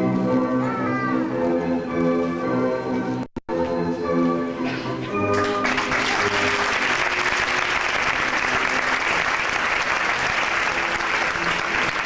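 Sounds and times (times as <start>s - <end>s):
faint music: 0.0s - 12.0s
audience applauding: 5.3s - 12.0s.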